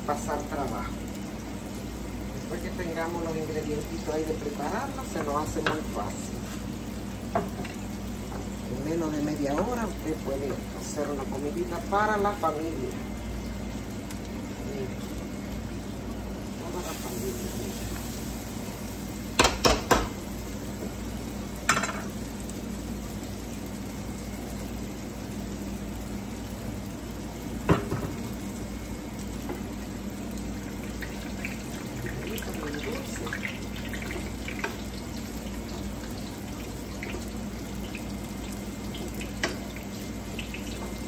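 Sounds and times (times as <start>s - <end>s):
plantain sizzling in hot oil: 0.0s - 41.0s
utensil knocking against pan: 19.4s - 20.1s.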